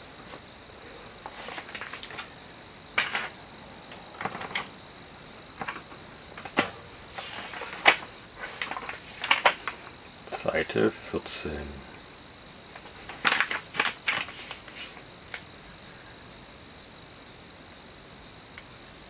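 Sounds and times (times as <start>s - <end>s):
plastic parts clicking and tapping: 3.0s - 3.4s, 4.2s - 4.7s, 5.6s - 6.8s.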